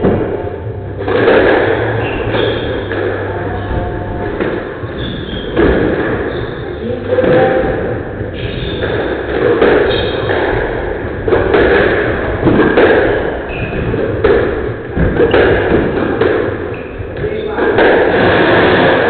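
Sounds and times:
squash ball hitting rackets and walls: 0:00.0 - 0:19.0
shoes squeaking on wooden floor: 0:01.9 - 0:07.6, 0:13.1 - 0:16.0.

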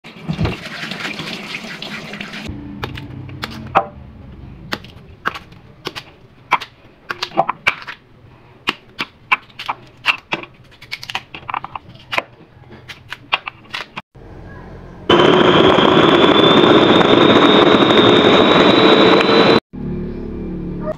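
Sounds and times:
tap water running into sink: 0:00.1 - 0:02.5
sharp clicks and snaps of peeling: 0:09.0 - 0:11.3.

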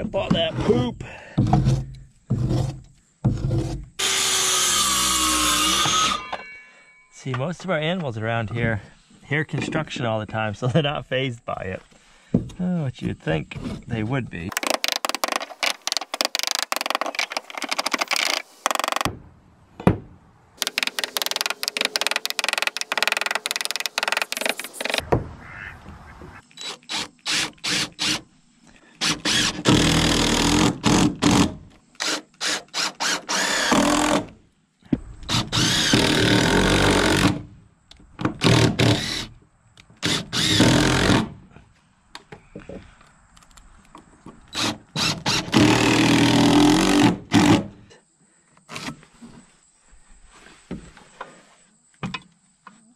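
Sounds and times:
cordless drill driving screws: 0:29.0 - 0:31.4, 0:32.0 - 0:34.3, 0:35.3 - 0:37.3, 0:40.0 - 0:41.2.

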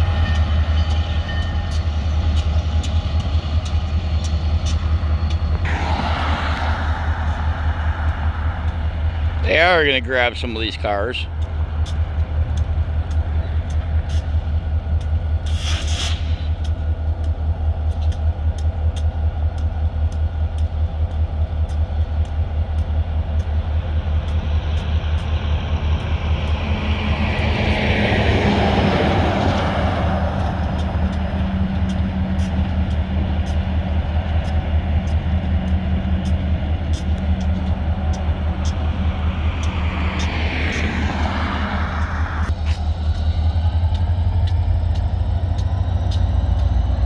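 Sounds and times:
semi-truck driving past: 0:05.4 - 0:17.8, 0:22.7 - 0:47.0
short hiss: 0:15.5 - 0:16.4
rhythmic engine throb: 0:16.6 - 0:47.0.

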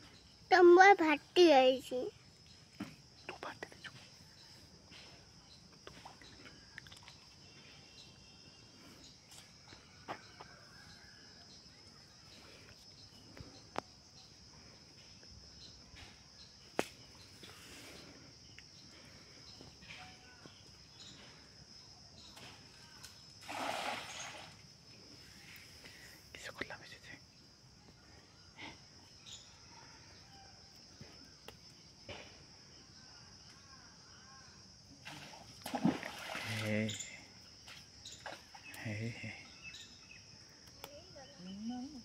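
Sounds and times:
cast net splashing on water: 0:23.4 - 0:24.6, 0:35.0 - 0:36.8.

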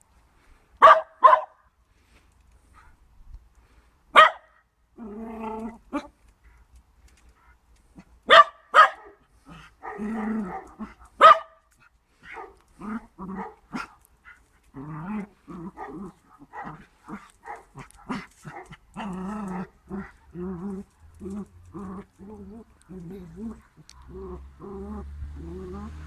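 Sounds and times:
dog barking loudly: 0:00.8 - 0:01.6, 0:04.1 - 0:04.6, 0:08.2 - 0:12.6, 0:13.2 - 0:14.0, 0:15.6 - 0:20.2
dogs play growling: 0:05.0 - 0:06.6, 0:09.4 - 0:11.2, 0:12.2 - 0:26.0
dogs yapping: 0:08.3 - 0:11.6, 0:15.2 - 0:26.0.

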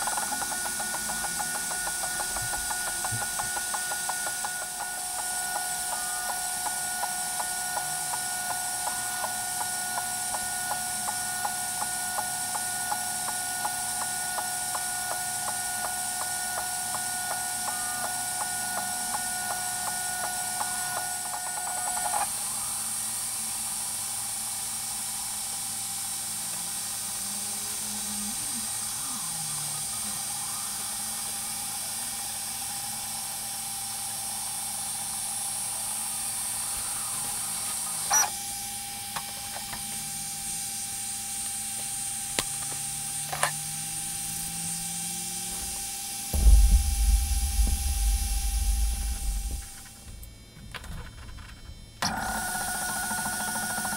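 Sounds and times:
regular ticking of moving head: 0:00.0 - 0:22.3
laser engraver whine: 0:00.0 - 0:53.9.

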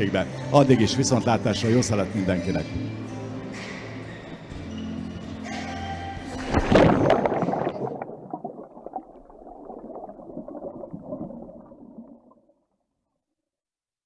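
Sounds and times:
low bubbling rumble: 0:06.4 - 0:12.5.

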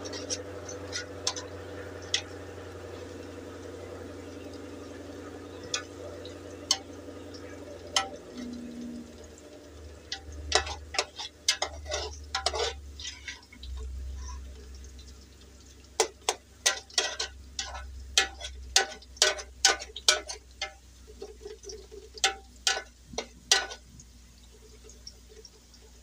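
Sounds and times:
low steady hum: 0:00.0 - 0:26.0
utensils knocking against dishes: 0:22.2 - 0:23.8.

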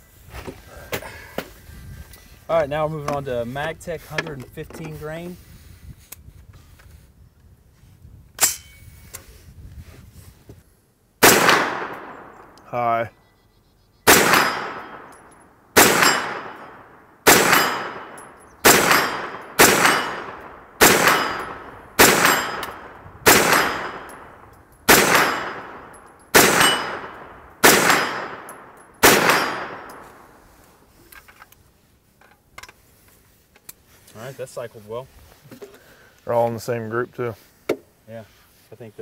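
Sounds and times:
metallic ring of steel target: 0:08.4 - 0:09.0, 0:14.1 - 0:30.1
carbine gunshots: 0:11.2 - 0:12.6, 0:14.1 - 0:30.4.

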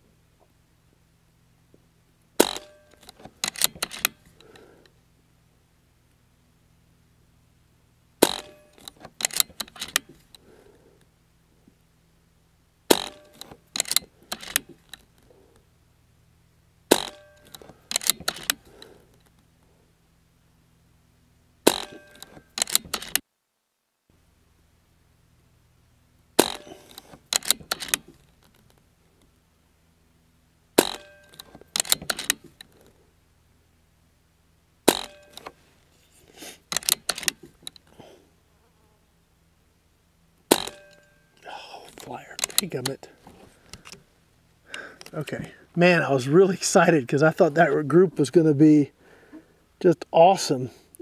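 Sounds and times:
air rifle shots: 0:02.4 - 0:04.2, 0:08.2 - 0:10.2, 0:12.9 - 0:14.8, 0:16.9 - 0:18.9, 0:21.6 - 0:23.2, 0:26.4 - 0:28.2, 0:30.8 - 0:32.5, 0:34.9 - 0:35.5, 0:40.5 - 0:41.0
rifle action clicking: 0:02.4 - 0:04.6, 0:08.2 - 0:10.4, 0:12.9 - 0:15.0, 0:16.9 - 0:18.9, 0:21.7 - 0:23.2, 0:26.4 - 0:28.1, 0:30.8 - 0:32.7, 0:36.7 - 0:37.9.

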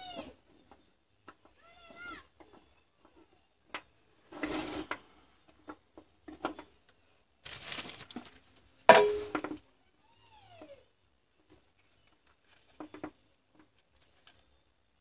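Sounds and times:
batteries and wires clattering: 0:07.4 - 0:09.6.

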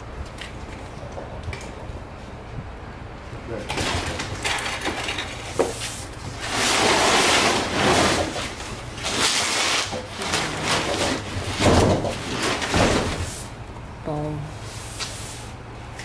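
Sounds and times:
cardboard scraping on concrete: 0:05.6 - 0:13.5.

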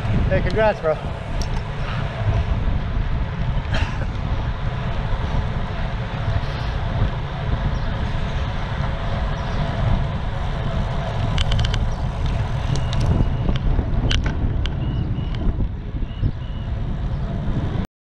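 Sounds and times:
street traffic rumble: 0:00.0 - 0:17.8.

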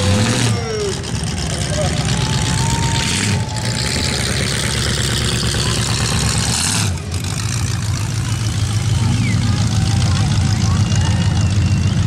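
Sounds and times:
car engine running loud: 0:00.0 - 0:12.0.

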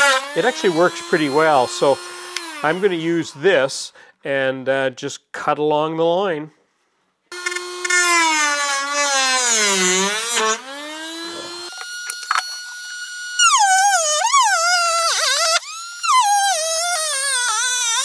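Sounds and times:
rotary tool cutting plastic: 0:00.0 - 0:03.4, 0:07.4 - 0:18.0.

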